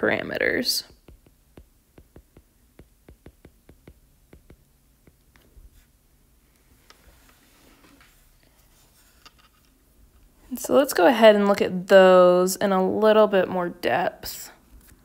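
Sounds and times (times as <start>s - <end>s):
stylus tapping on glass screen: 1.0s - 5.4s.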